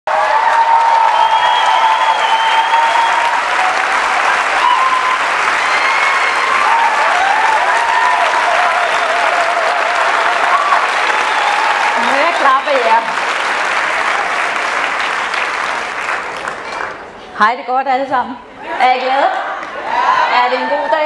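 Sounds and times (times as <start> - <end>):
audience applauding: 0.1 - 17.2.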